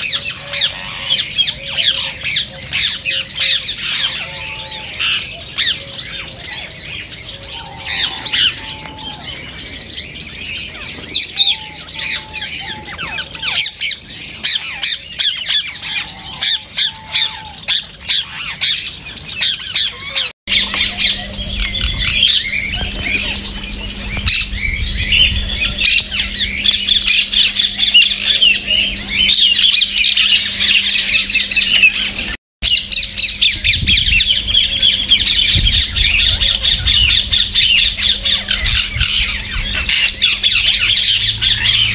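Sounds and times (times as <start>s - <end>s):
parakeets screeching: 0.0s - 41.9s
low rumble: 20.5s - 41.9s.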